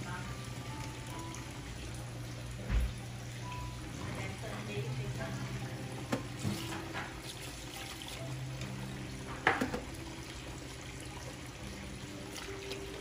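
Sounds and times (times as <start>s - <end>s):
water swirling and splashing: 6.4s - 8.8s.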